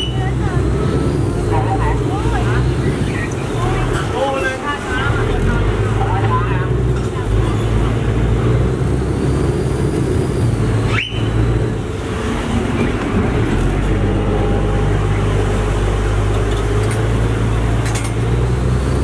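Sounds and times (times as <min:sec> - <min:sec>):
boat engine running: 0:00.0 - 0:19.0
shrill whistle blast: 0:10.9 - 0:11.4.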